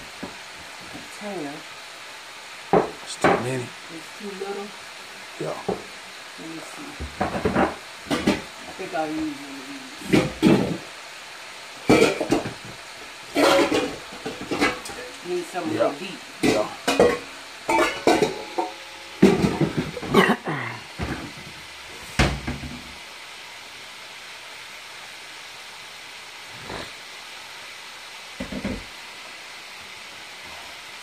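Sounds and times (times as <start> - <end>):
chicken wings sizzling in oil: 0.0 - 31.0
metal bowl and pan lids clattering: 7.2 - 8.5, 10.0 - 10.8, 11.8 - 12.6, 13.3 - 20.3.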